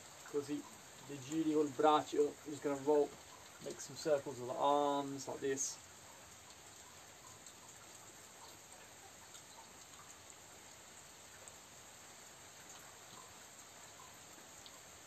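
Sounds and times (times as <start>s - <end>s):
faint steady hiss: 0.0s - 15.0s
soft ticks: 6.0s - 10.2s.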